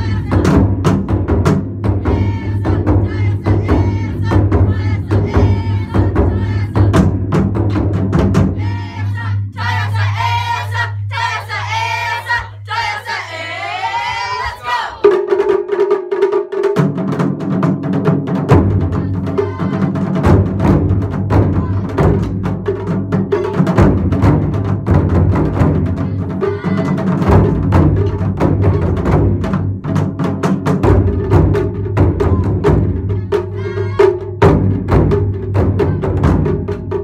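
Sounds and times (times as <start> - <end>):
ensemble drumming: 0.0 - 12.8, 16.9 - 37.0
players shouting: 8.6 - 15.1.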